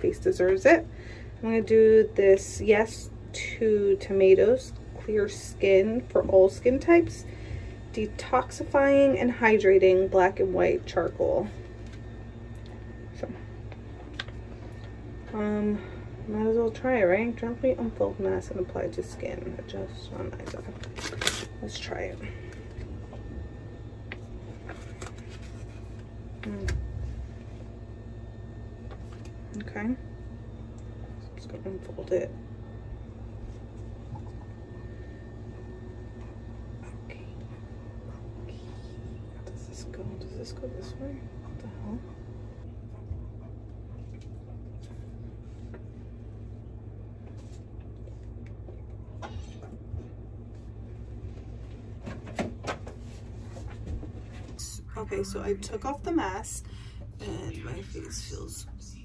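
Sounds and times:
steady low hum: 0.0 - 59.0
foil packet crinkling: 20.4 - 21.6.

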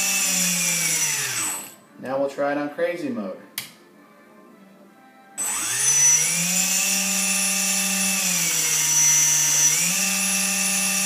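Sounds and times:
electric model airplane motors whining: 5.4 - 11.0.

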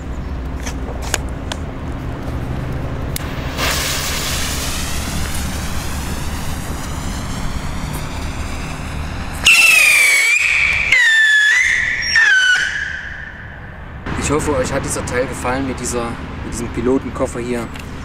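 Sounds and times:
fuse hissing: 3.2 - 14.0
rocket whistles falling in pitch: 3.6 - 13.8.

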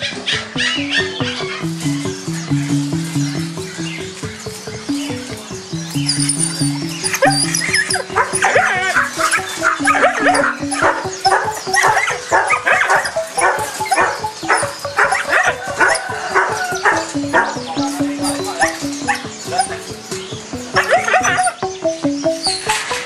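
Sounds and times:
background music with bass line: 0.0 - 23.0
puppies yipping and barking: 0.0 - 23.0.

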